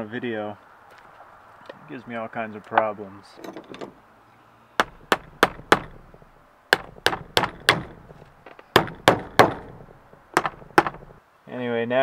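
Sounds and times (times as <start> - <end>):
hammer strikes on metal: 4.8 - 8.1, 8.7 - 11.2.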